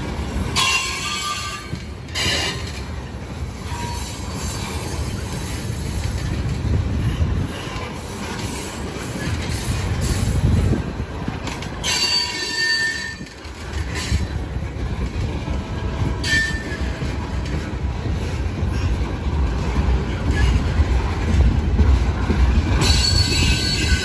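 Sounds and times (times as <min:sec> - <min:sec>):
train wheels rumbling on rail: 0:00.0 - 0:24.0
high wheel squeals: 0:11.8 - 0:14.2, 0:16.2 - 0:17.0, 0:22.8 - 0:24.0.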